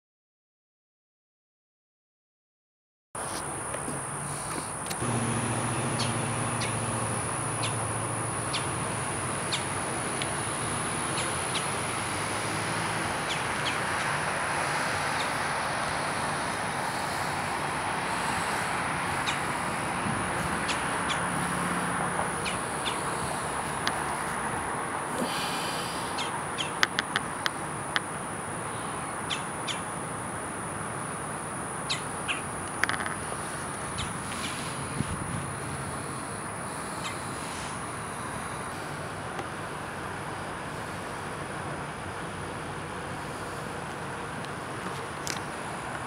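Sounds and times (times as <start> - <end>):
low engine hum: 3.8 - 46.0
small birds chirping: 4.2 - 12.0, 13.2 - 16.2, 18.1 - 19.8, 20.4 - 21.6, 22.2 - 24.1, 25.2 - 30.0, 31.8 - 35.1, 35.8 - 37.7.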